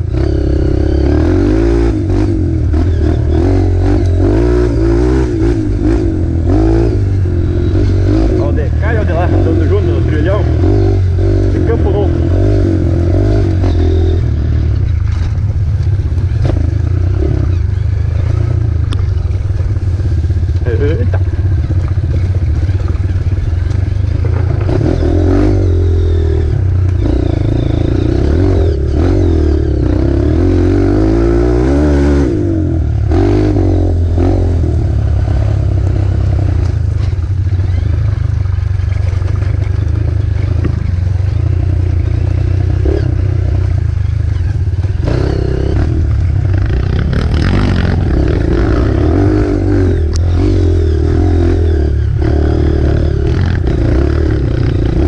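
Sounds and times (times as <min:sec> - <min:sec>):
motorcycle engine revving: 0:00.0 - 0:55.0
bike clattering and scraping: 0:13.4 - 0:25.7, 0:34.9 - 0:52.2.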